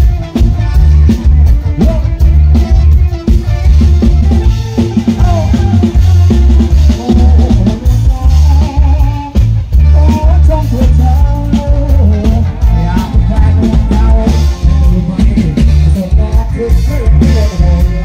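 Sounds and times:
dance music from loudspeakers: 0:00.0 - 0:08.1
drum kit heavy bass beat: 0:00.0 - 0:18.0.

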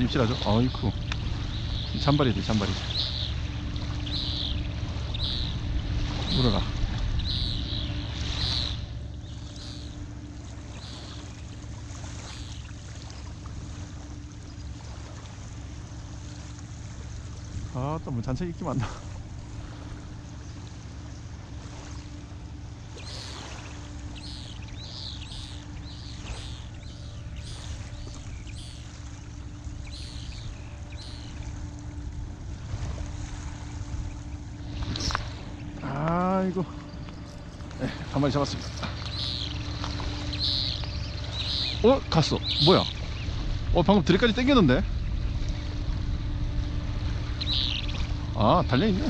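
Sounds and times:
bird chirping: 0:00.0 - 0:11.4, 0:22.9 - 0:32.0, 0:33.7 - 0:43.7, 0:47.2 - 0:49.0
distant boat engine drone: 0:00.0 - 0:49.0
faint steady hum: 0:00.0 - 0:49.0
low rumble: 0:00.0 - 0:49.0
water washing on shore: 0:00.0 - 0:49.0.

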